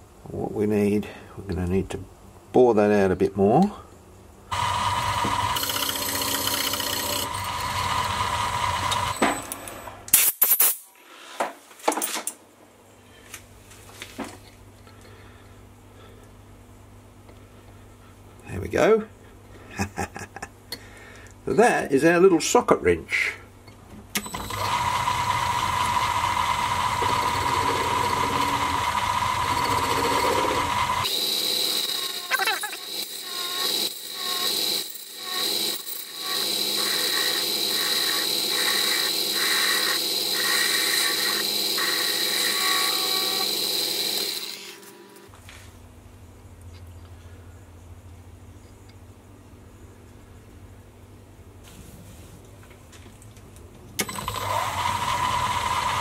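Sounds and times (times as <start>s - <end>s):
drill boring into brass: 4.5s - 9.2s, 24.2s - 44.9s, 54.0s - 56.0s
lathe motor whine: 4.5s - 9.4s, 24.2s - 45.3s, 54.0s - 56.0s.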